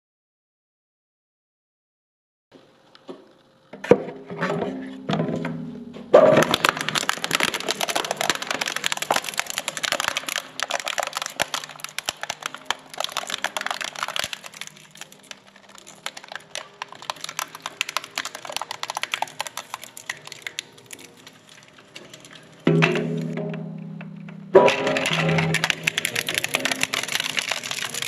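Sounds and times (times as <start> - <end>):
shredder cracking plastic: 6.2 - 22.6, 24.7 - 28.0.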